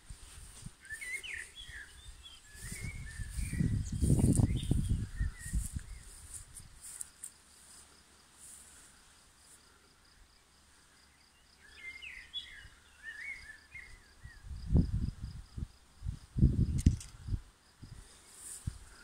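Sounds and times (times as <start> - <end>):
insect chirping: 0.3 - 19.0
bird warbling song: 0.8 - 6.2, 11.3 - 14.5
wind buffeting microphone: 1.5 - 6.8, 14.2 - 18.0.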